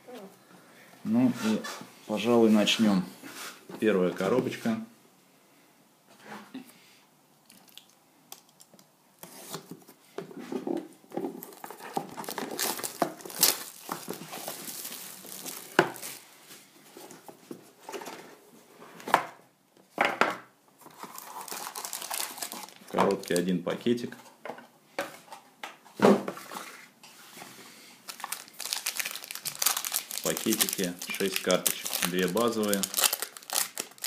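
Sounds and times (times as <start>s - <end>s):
plastic shrink wrap crinkling: 11.3s - 16.3s, 20.9s - 23.6s, 28.0s - 34.0s.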